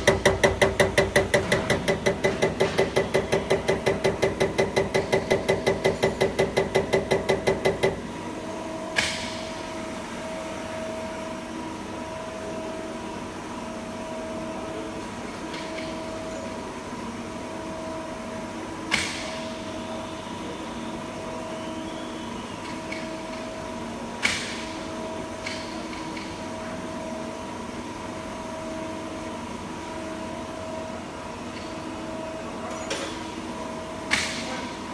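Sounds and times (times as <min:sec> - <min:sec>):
injector rapid ticking: 0:00.0 - 0:08.1
test bench humming: 0:00.0 - 0:11.4.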